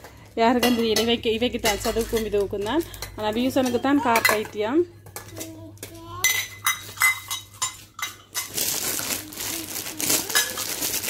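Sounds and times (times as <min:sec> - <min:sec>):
steel plates and bowls clinking: 0:06.2 - 0:09.2, 0:10.0 - 0:11.0
plastic packaging rustling: 0:06.9 - 0:11.0.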